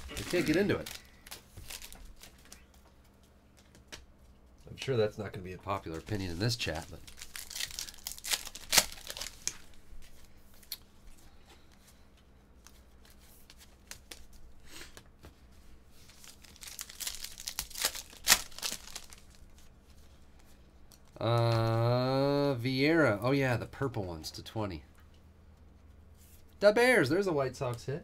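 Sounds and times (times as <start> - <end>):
wrapper tearing and crinkling: 0.0 - 2.6, 6.6 - 9.8, 16.1 - 19.7
cards rustling: 0.0 - 4.0, 5.8 - 10.8, 12.6 - 21.6.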